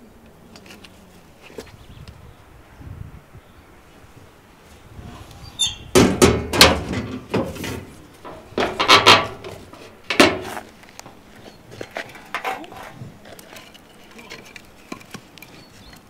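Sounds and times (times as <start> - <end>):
metallic bangs of doors latching: 5.6 - 10.5.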